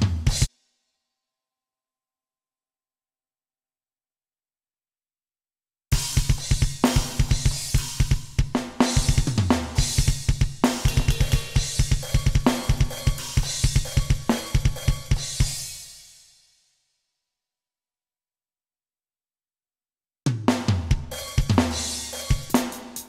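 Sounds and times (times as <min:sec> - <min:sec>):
rapid kick drum strokes: 0:00.0 - 0:00.5, 0:05.9 - 0:16.3, 0:20.3 - 0:23.0
snare drum hits: 0:10.6 - 0:15.1
crash cymbal ringing: 0:10.7 - 0:16.4.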